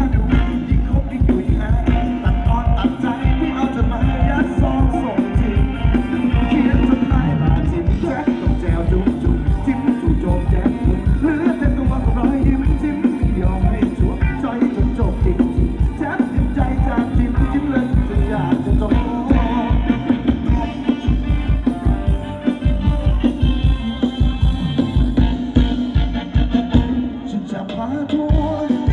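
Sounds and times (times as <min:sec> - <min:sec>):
steady drum beat: 0:00.0 - 0:27.3, 0:28.1 - 0:28.9
live band playing dance music: 0:00.0 - 0:28.9
person singing: 0:00.0 - 0:28.9.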